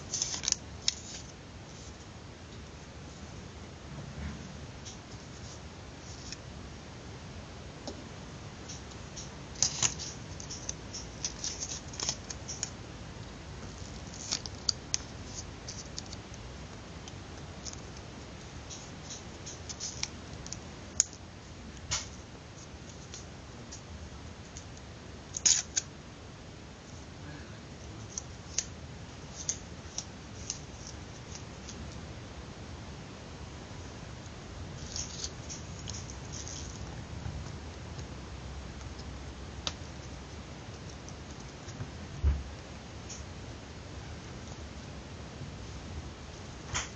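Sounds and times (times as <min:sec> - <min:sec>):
paper crinkles and clicks: 0:00.1 - 0:01.3, 0:08.7 - 0:12.8, 0:13.6 - 0:16.4, 0:17.0 - 0:18.0, 0:18.7 - 0:21.2, 0:25.4 - 0:25.9, 0:34.8 - 0:37.0.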